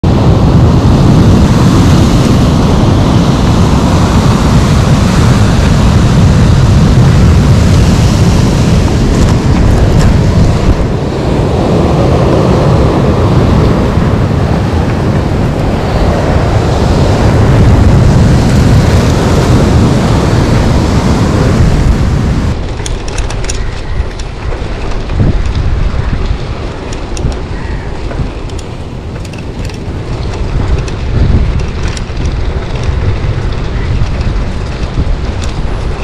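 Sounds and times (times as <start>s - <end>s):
wind buffeting microphone: 0.0s - 36.0s
faint clicks: 22.7s - 27.4s.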